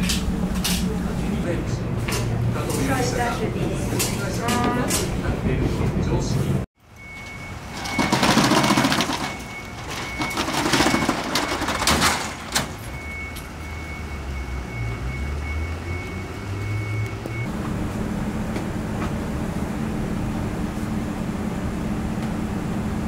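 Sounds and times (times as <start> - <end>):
metal shutter rattling: 7.5 - 13.0.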